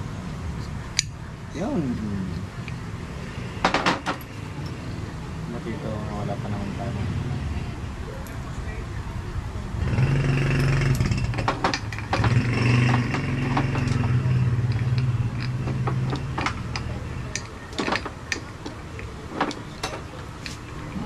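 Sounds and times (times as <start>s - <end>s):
tools clinking: 10.5s - 20.9s.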